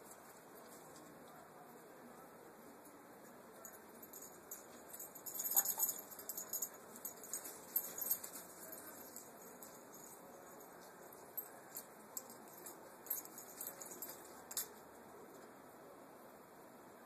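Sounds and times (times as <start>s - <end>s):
high-pitched jingling and clicking: 3.6s - 14.8s.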